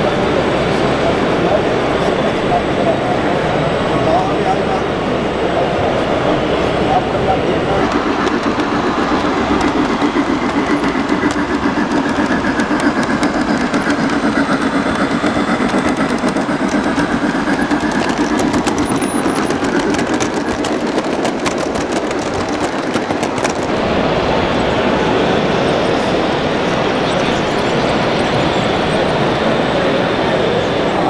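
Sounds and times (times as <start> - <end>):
engine running with fluttering clatter: 0.0 - 31.0
sharp ticks: 7.8 - 23.7.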